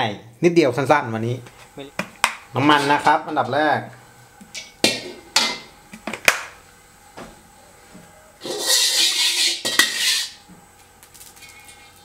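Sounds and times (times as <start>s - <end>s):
ladle scraping wok: 8.4s - 10.4s.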